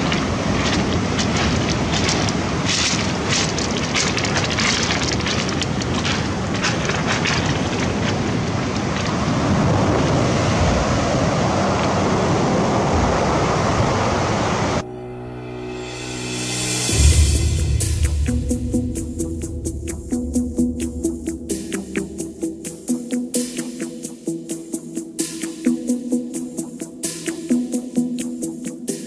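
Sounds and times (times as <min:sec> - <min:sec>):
short crackles: 0:00.0 - 0:09.2
wind buffeting microphone: 0:00.0 - 0:14.8
sea surf: 0:00.0 - 0:14.9.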